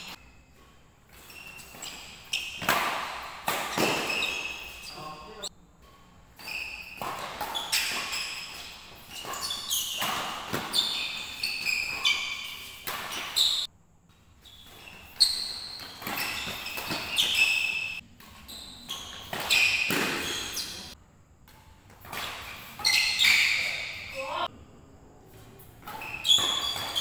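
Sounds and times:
rackets hitting shuttlecock: 0:00.0 - 0:13.6, 0:14.4 - 0:24.5, 0:25.3 - 0:27.0
shoes squeaking on wooden floor: 0:00.0 - 0:13.7, 0:14.3 - 0:21.0, 0:22.0 - 0:24.5, 0:25.3 - 0:27.0.

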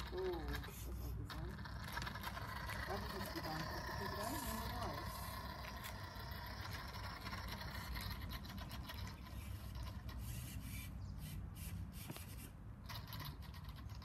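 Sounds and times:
electric motor and gears whirring: 0:00.0 - 0:14.0.

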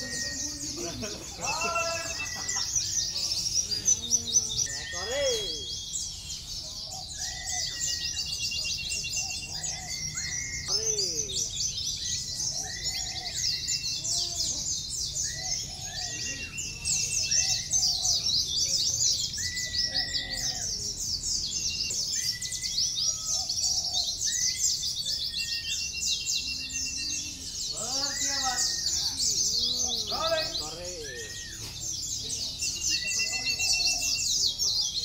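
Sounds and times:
birds twittering: 0:00.0 - 0:35.0
lower bird chirps: 0:00.0 - 0:35.0.

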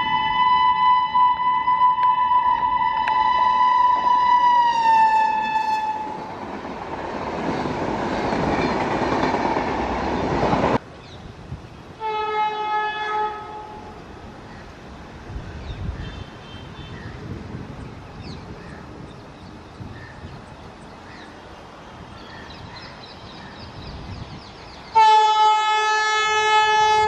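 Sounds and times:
train horn: 0:00.0 - 0:06.3, 0:12.0 - 0:14.1, 0:24.9 - 0:27.0
short train horn: 0:00.1 - 0:06.2, 0:12.0 - 0:14.0, 0:25.0 - 0:27.0
train coaches rushing past: 0:02.3 - 0:10.8.

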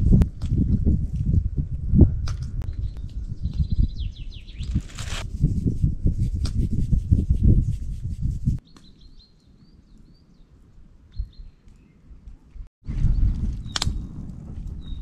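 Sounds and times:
birds chirping: 0:02.6 - 0:05.2
low rumbling rubbing noise: 0:04.5 - 0:08.6.

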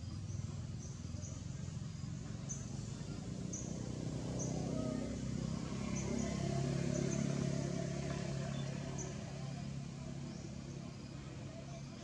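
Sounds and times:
vehicle engine passing by: 0:00.4 - 0:12.0.

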